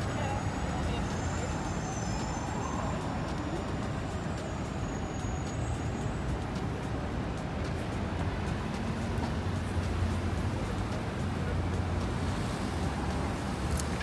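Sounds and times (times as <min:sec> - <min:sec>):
passing cars rumble: 0:00.0 - 0:14.0.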